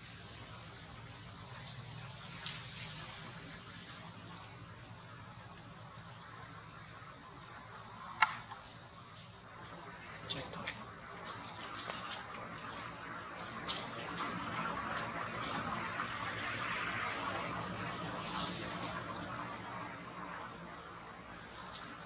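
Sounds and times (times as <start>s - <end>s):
insects droning: 0.0s - 22.0s
sharp click: 8.2s - 8.6s.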